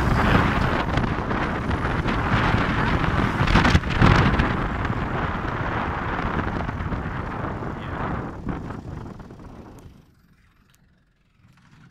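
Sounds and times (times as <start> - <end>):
wind buffeting microphone: 0.0 - 10.1
truck rumbling on road: 0.0 - 11.9.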